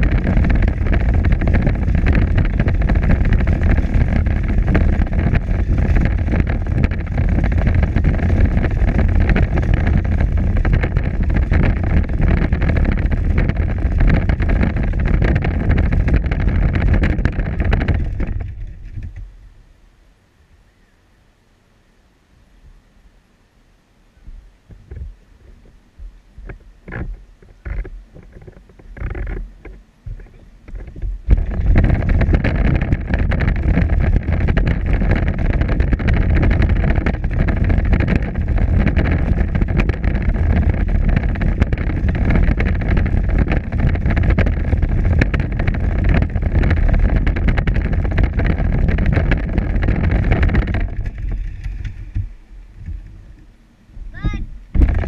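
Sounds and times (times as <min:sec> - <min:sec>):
toy car rolling and motor running: 0:00.0 - 0:19.2, 0:26.9 - 0:52.3
wind on microphone: 0:00.0 - 0:19.8, 0:24.2 - 0:55.0
scattered knocks: 0:24.7 - 0:53.1, 0:54.7 - 0:55.0.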